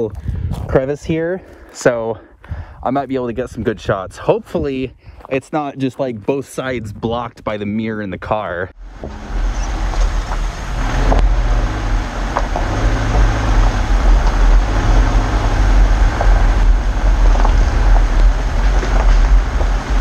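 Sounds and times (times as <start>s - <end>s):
car engine and tyres rumbling: 8.8s - 20.0s.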